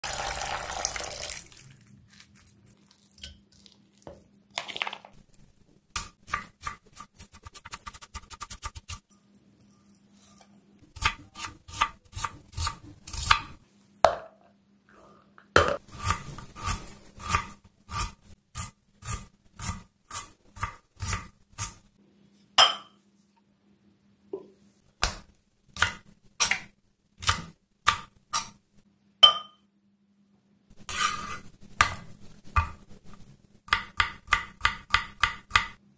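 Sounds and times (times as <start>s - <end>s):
water poured into plastic bowl: 0.0s - 1.9s
knocks and clinks of food preparation: 13.3s - 14.5s, 22.6s - 23.0s, 29.2s - 29.7s
knife chopping on wooden board: 33.7s - 35.8s.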